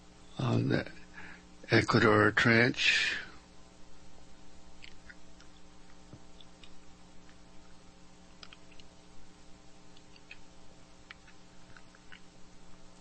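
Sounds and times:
steady low hum: 0:00.0 - 0:13.0
faint clicks and ticks: 0:08.3 - 0:09.0, 0:09.9 - 0:12.3.

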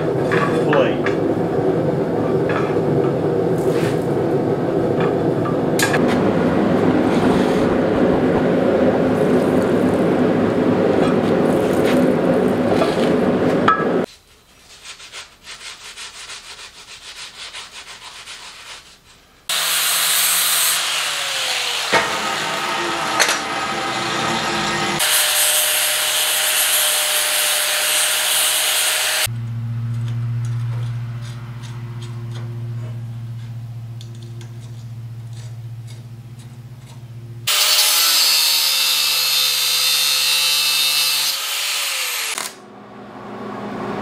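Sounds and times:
quenchant boiling and sizzling: 0:00.0 - 0:05.1, 0:05.7 - 0:19.5, 0:22.8 - 0:37.5
angle grinder running: 0:19.5 - 0:32.7, 0:37.5 - 0:42.7.

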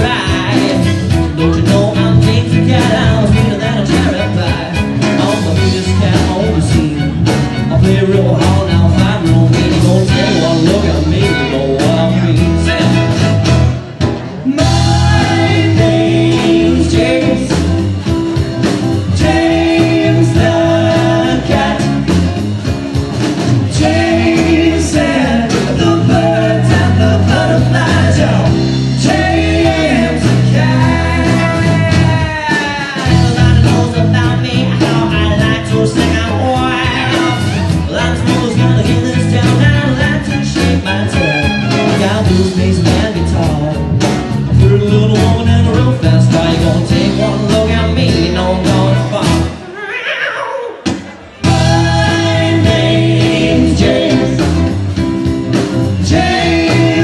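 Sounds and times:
electric bass: 0:00.0 - 0:49.7, 0:51.4 - 0:57.0
acoustic guitar: 0:00.0 - 0:57.0
drums: 0:00.0 - 0:57.0
voices singing together: 0:14.5 - 0:18.0, 0:18.7 - 0:22.4, 0:23.5 - 0:33.9, 0:51.4 - 0:55.0, 0:55.9 - 0:57.0.

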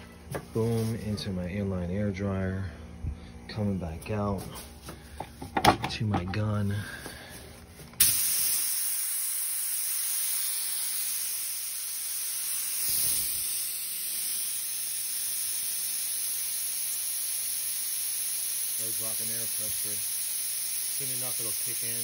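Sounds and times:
spray gun air hissing: 0:08.0 - 0:22.0.

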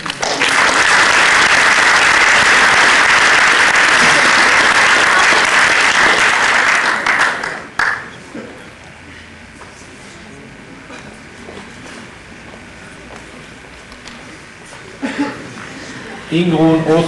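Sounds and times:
audience applauding: 0:00.0 - 0:08.2.

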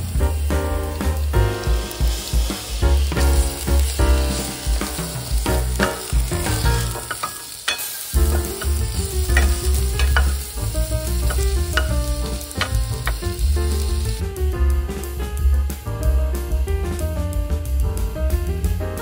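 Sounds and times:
background music with bass: 0:00.0 - 0:07.2, 0:08.2 - 0:19.0
food sizzling in pan: 0:00.0 - 0:14.2.

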